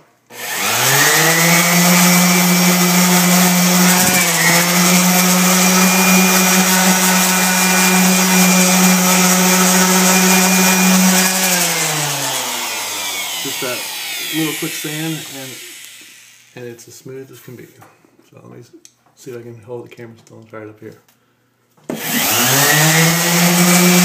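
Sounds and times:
orbital sander running: 0.3 - 16.6, 22.0 - 24.0.

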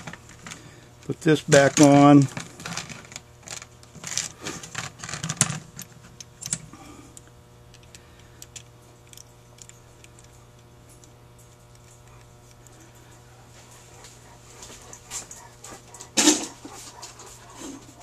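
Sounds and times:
steady low hum: 0.0 - 18.0
small metal clicks and taps: 7.2 - 12.8.

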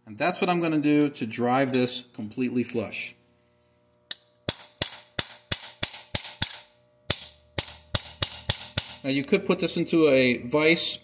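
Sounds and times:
hammer tapping steel punch: 4.1 - 9.0.

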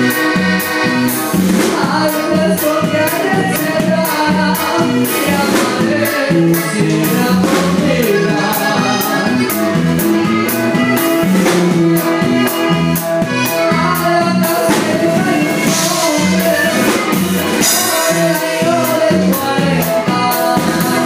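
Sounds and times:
bass line: 0.0 - 21.0
drum kit beat: 0.0 - 21.0
latin band music: 0.0 - 21.0
person singing: 0.0 - 21.0.

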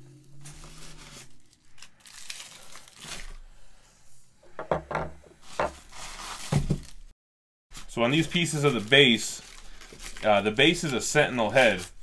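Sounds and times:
packaging rustling and crinkling: 0.3 - 3.4, 5.4 - 7.1, 7.7 - 12.0.

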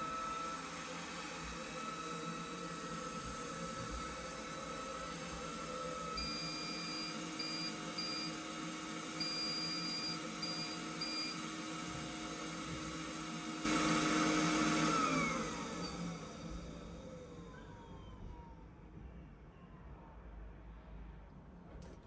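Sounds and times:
robot suction fan running: 0.0 - 17.5
motor winding down: 0.0 - 18.2.

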